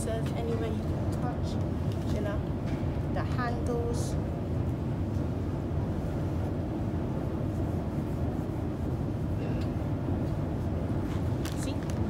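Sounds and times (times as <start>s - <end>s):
terminal background rumble: 0.0s - 12.0s.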